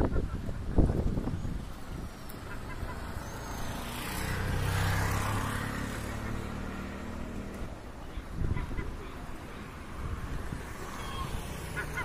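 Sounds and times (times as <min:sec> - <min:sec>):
engine passing by: 0:00.7 - 0:12.0.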